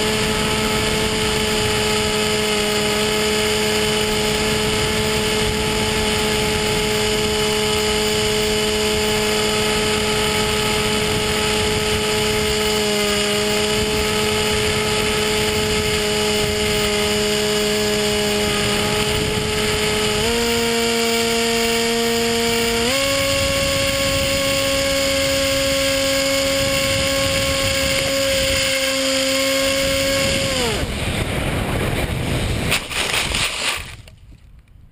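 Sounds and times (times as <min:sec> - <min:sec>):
model plane motor whining: 0:00.0 - 0:34.2
rustling in dry leaves: 0:27.7 - 0:34.4.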